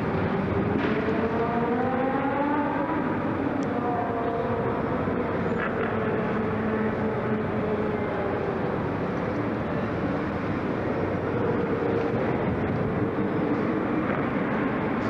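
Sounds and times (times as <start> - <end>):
racing kart engines running: 0.0 - 15.0.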